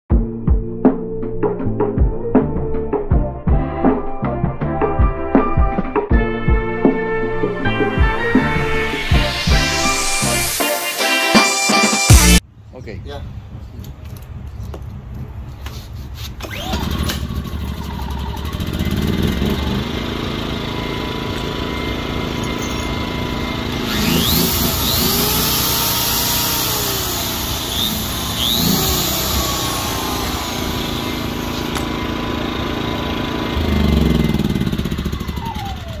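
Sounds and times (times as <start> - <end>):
drill motor whining: 7.5 - 12.4, 16.4 - 36.0
generator engine running: 16.4 - 36.0.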